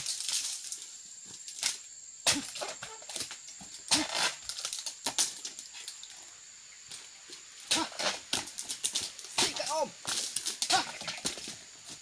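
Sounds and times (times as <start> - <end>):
blade chopping fronds: 3.9 - 4.8.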